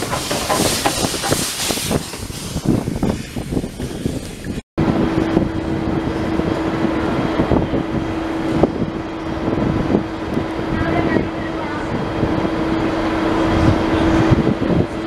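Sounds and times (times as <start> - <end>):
distant steam train approaching: 0.0 - 2.9
steam locomotive passing: 0.0 - 3.1
steam hissing: 0.0 - 4.2
wind buffeting microphone: 0.0 - 15.0
steady low hum: 4.8 - 15.0.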